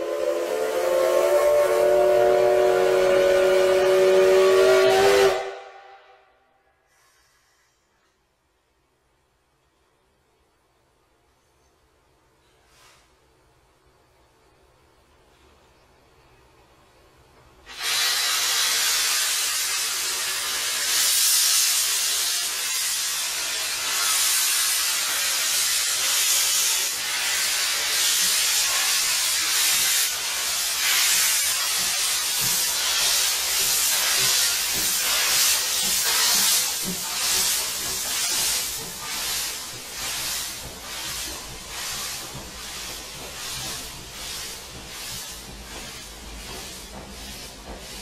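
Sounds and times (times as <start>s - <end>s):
steam locomotive blowing off steam: 0.0s - 6.2s, 17.6s - 48.0s.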